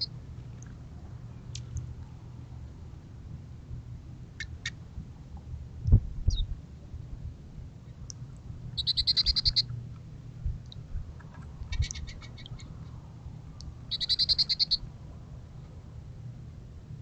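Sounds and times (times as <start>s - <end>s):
goldfinches twittering: 8.8s - 9.7s, 13.9s - 14.8s.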